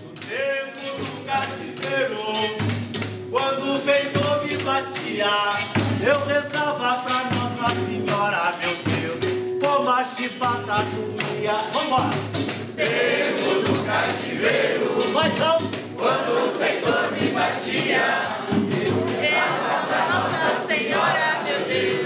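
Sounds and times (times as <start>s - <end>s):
group of people singing: 0.0s - 9.4s, 10.1s - 22.0s
hand percussion: 0.0s - 22.0s
shaker strokes: 12.7s - 22.0s.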